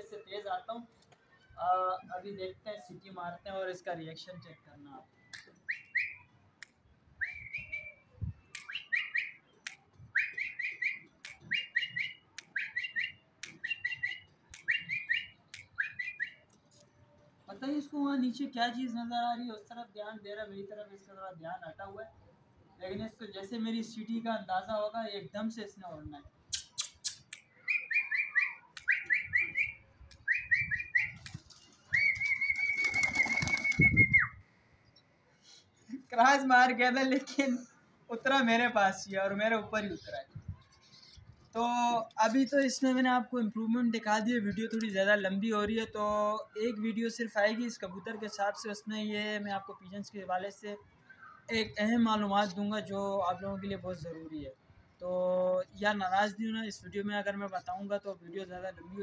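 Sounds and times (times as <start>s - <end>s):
man whistling short rising whistles: 7.2s - 8.0s, 32.0s - 34.4s
man whistling: 7.2s - 9.3s, 27.7s - 31.2s, 32.0s - 34.4s
sharp mouth click: 13.4s - 13.7s, 26.5s - 27.5s
pigeon wings flapping: 31.2s - 34.2s.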